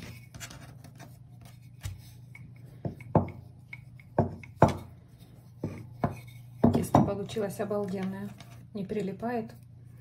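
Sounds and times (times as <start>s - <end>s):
low steady hum: 0.0s - 10.0s
rolling pin rubbing dough: 0.0s - 10.0s
rolling pin knocking on table: 4.2s - 4.9s.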